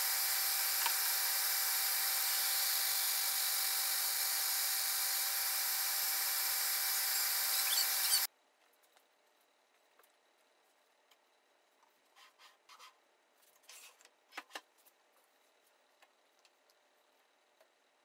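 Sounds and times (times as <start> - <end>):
disc sander whirring: 0.0 - 8.3.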